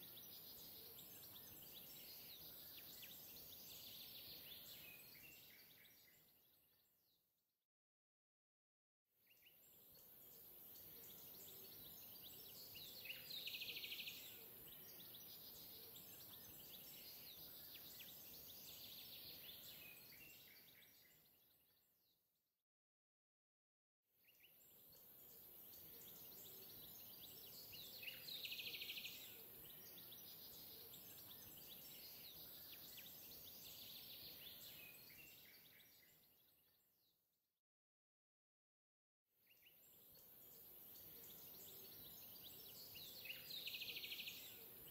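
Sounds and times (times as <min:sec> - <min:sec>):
bird chirps: 0:09.3 - 0:21.8, 0:24.3 - 0:36.8, 0:39.5 - 0:44.9.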